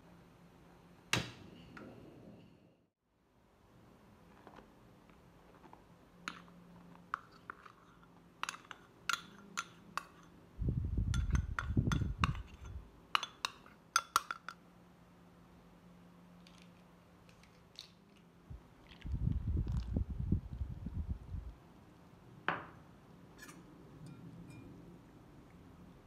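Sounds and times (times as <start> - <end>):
spoon clinking against glass bowl: 8.4 - 10.4, 11.1 - 14.6, 23.4 - 24.8.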